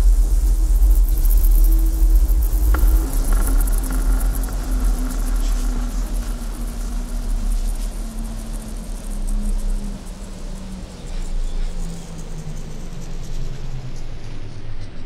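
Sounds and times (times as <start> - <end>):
deep bass drone: 0.0 - 11.8.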